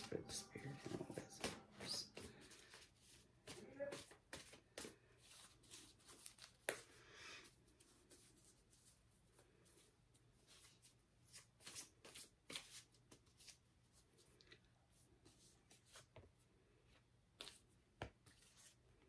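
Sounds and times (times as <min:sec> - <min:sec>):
cards being shuffled: 0:00.0 - 0:06.9, 0:11.3 - 0:13.6.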